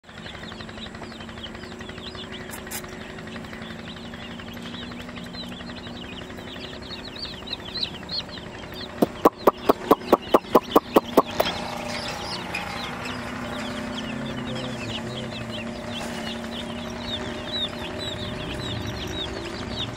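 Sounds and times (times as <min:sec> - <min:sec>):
baby chicks peeping: 0:00.1 - 0:19.9
loud sharp clicks: 0:09.0 - 0:11.6.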